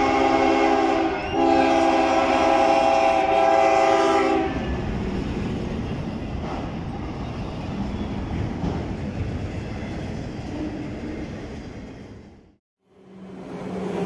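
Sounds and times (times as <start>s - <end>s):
locomotive horn blasting: 0.0s - 4.6s
freight train rolling on rails: 0.0s - 14.0s.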